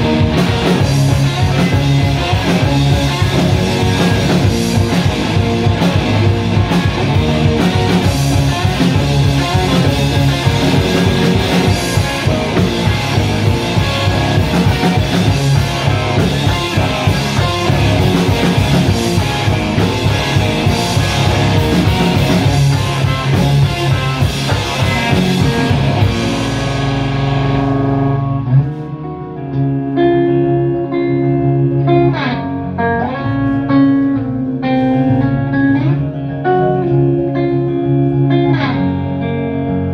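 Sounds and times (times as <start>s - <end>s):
drum kit: 0.0s - 29.1s
electric guitar: 0.0s - 39.9s.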